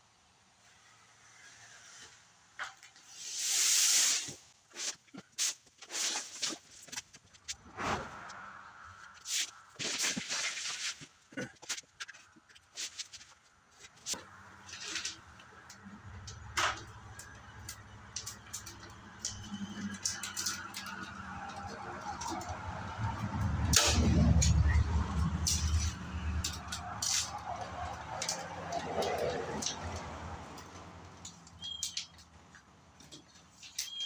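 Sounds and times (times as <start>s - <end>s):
vehicle low rumble: 7.2s - 10.3s, 13.4s - 33.6s.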